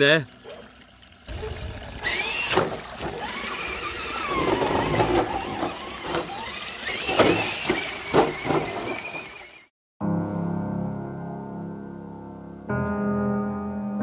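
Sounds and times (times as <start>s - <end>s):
electric motor and gears whining: 1.3s - 9.7s.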